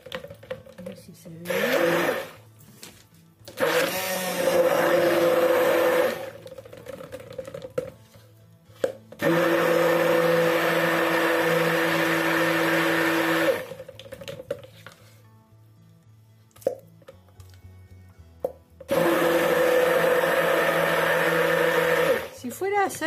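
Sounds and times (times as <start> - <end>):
electric stick blender running: 1.4 - 2.4, 3.5 - 6.6, 9.2 - 13.9, 18.9 - 22.4.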